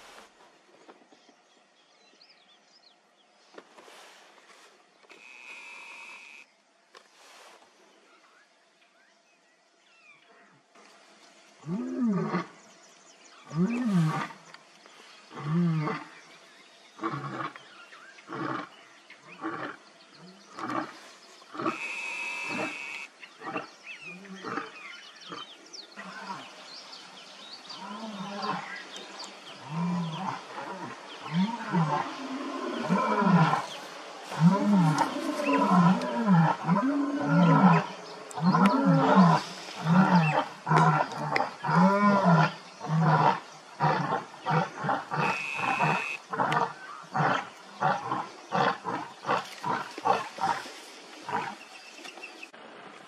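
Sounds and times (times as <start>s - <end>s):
lions roaring: 34.3s - 50.6s.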